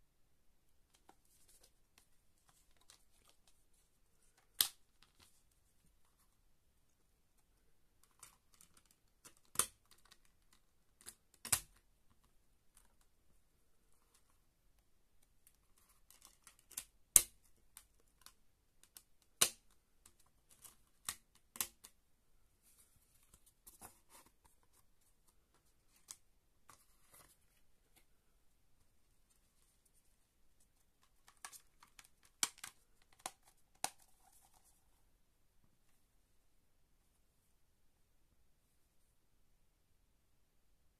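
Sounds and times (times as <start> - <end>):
plastic disc clicks and snaps: 31.3 - 34.0.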